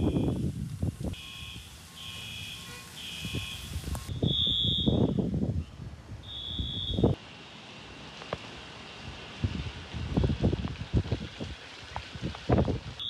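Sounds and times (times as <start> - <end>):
single higher beep: 1.2 - 5.2
two-tone alarm beeping: 1.2 - 5.2, 6.2 - 7.2.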